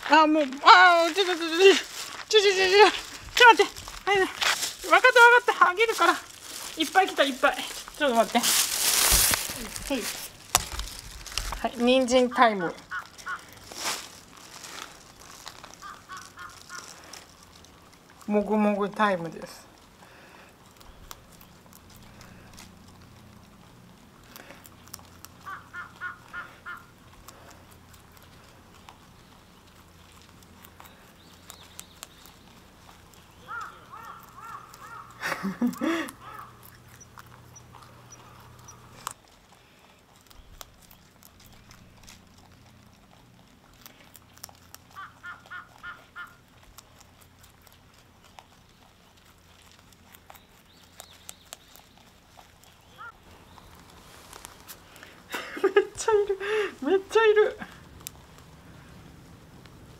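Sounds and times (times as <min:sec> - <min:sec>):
rabbits munching carrot: 0:00.0 - 0:59.9.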